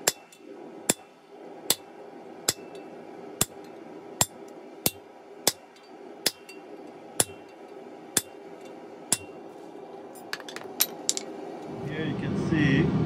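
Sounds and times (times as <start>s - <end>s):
hammer striking hot steel on anvil: 0.0s - 9.4s.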